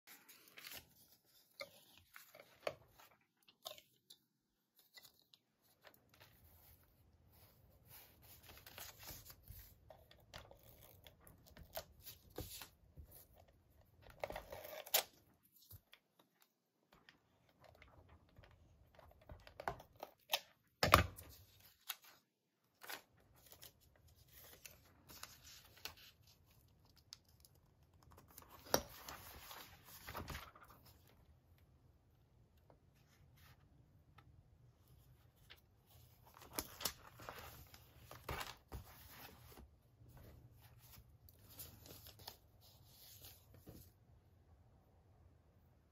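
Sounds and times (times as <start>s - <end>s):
paper rustling: 0.1s - 3.1s, 28.2s - 31.1s.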